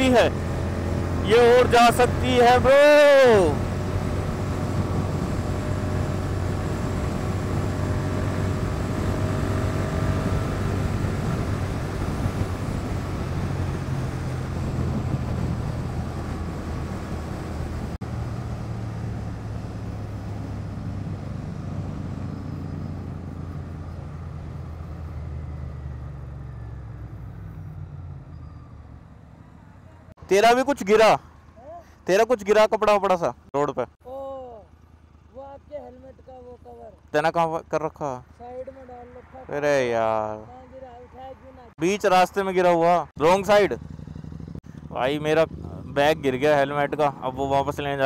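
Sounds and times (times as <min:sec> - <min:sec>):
wind rush: 0:03.6 - 0:18.0
motorcycle engine running: 0:43.2 - 0:47.6.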